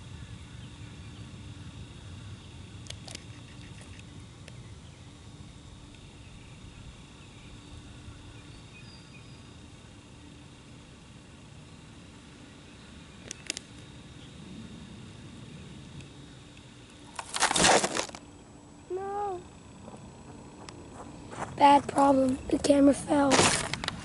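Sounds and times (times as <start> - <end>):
steady low rumble: 9.7 - 24.0.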